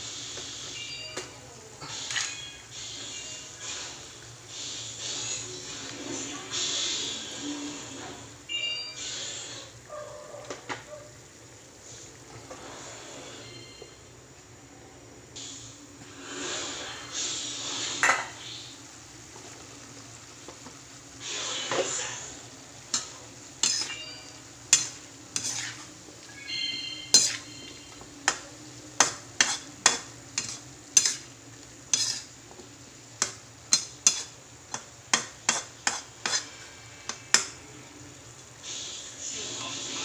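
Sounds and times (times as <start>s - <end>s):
low frying sizzle: 0.0s - 40.0s
metal spatula scraping a wok: 22.9s - 28.4s, 29.0s - 32.4s, 33.2s - 37.5s.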